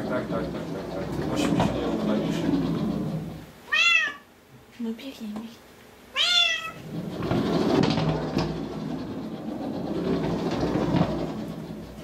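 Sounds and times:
cat exercise wheel rolling: 0.0s - 3.5s, 6.4s - 12.0s
kitten meowing: 3.7s - 4.3s, 6.1s - 6.8s.

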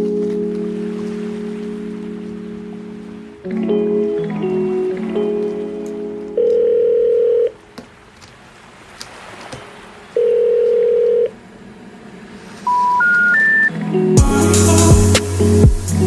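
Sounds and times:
telephone ringing tones: 6.4s - 7.6s, 10.2s - 11.3s, 12.7s - 13.7s
short rising beeps: 12.7s - 13.7s.

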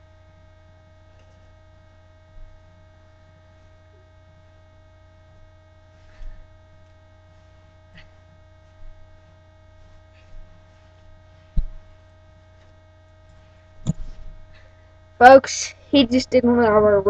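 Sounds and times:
steady low hum: 0.0s - 17.0s
faint rustles: 5.3s - 14.9s
dull thumps on carpeted floor: 11.5s - 12.0s.

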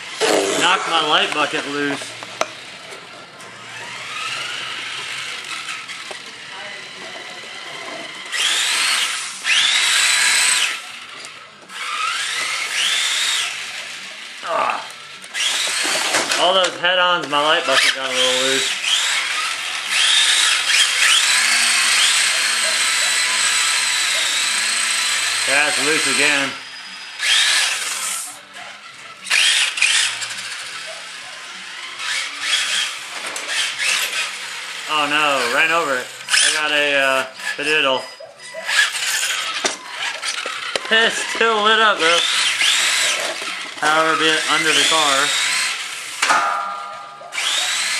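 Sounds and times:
electric motor whining: 0.0s - 16.7s, 17.3s - 46.5s, 47.3s - 47.9s
tyres sliding on floor: 15.3s - 17.3s, 32.0s - 34.5s, 38.4s - 43.8s.

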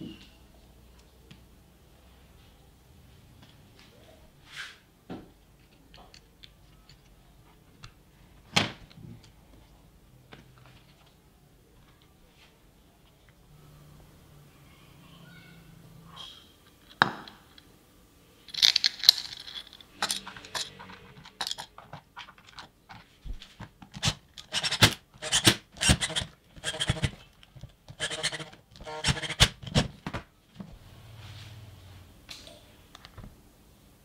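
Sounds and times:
screwdriver driving screws: 24.0s - 27.2s, 28.0s - 29.9s.

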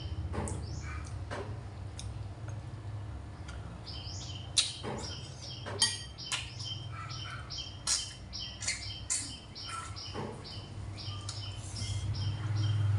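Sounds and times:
high chirps: 4.0s - 12.9s.

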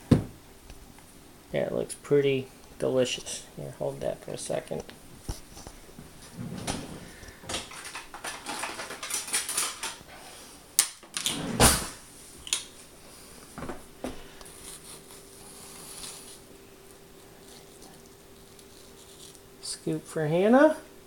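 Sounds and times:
faint steady hum: 0.0s - 21.0s
kitchen handling clicks and rustles: 6.3s - 10.1s.

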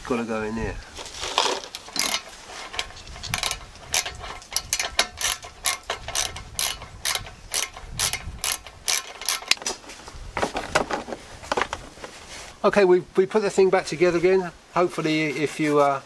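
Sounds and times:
ratchet wrench clicking: 1.8s - 9.6s.

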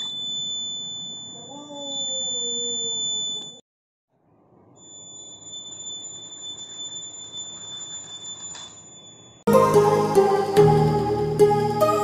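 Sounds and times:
high-pitched buzzer beep: 0.0s - 3.6s.

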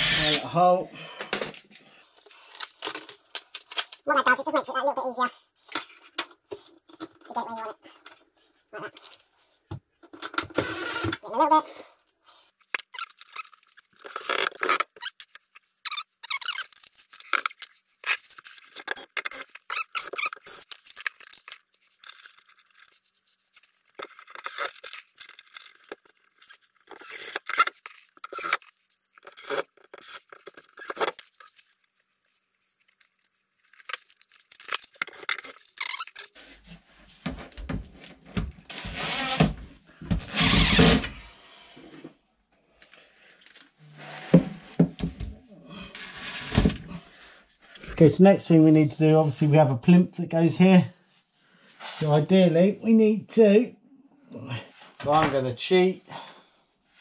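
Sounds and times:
battery drill driving screws: 0.0s - 0.4s, 10.6s - 11.2s, 27.0s - 28.6s, 38.7s - 39.6s, 40.2s - 41.2s.

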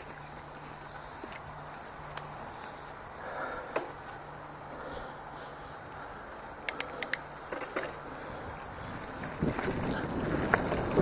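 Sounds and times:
bike tyres rolling hiss: 0.0s - 11.0s
bike mechanical clicks: 6.3s - 11.0s.

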